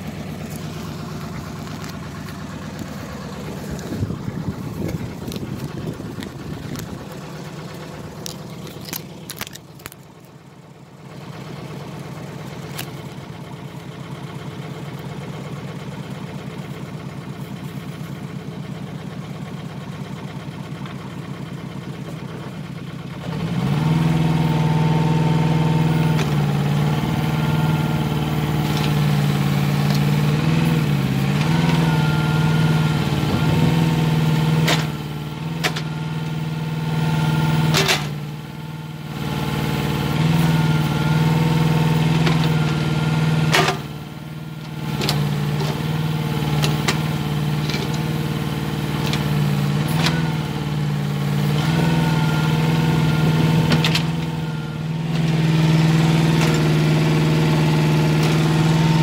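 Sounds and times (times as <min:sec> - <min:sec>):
excavator engine running: 0:00.0 - 0:59.0
hydraulic whine: 0:23.2 - 0:59.0.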